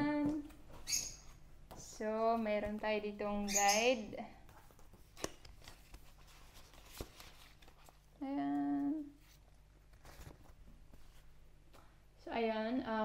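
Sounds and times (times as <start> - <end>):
woman humming: 0.0 - 0.4, 8.2 - 9.2
paper and cardboard rustling: 4.5 - 8.1, 9.1 - 11.8.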